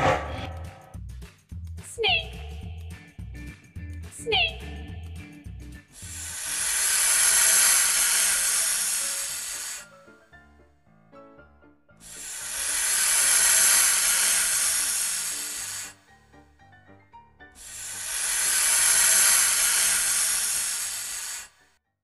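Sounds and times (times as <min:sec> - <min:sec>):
snake hissing: 0:05.9 - 0:10.2, 0:12.0 - 0:16.2, 0:17.6 - 0:21.6
soft background music: 0:09.8 - 0:12.8, 0:15.0 - 0:18.7.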